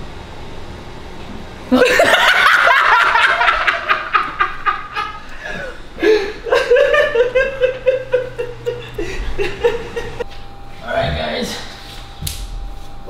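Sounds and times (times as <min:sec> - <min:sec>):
men laughing hard: 0:01.7 - 0:10.2.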